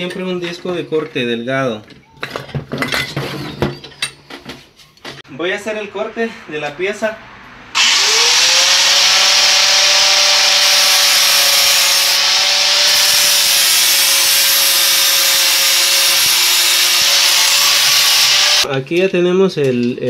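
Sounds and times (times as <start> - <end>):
angle grinder cutting metal: 7.8 - 18.7.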